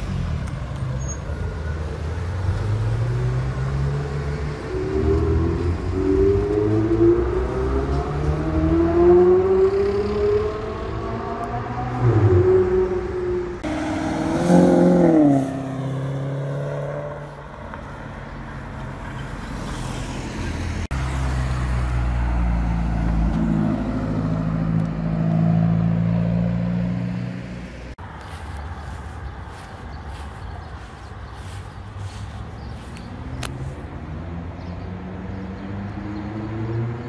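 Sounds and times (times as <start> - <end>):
car engine revving and accelerating: 1.8 - 18.1, 19.2 - 28.0, 32.8 - 37.0.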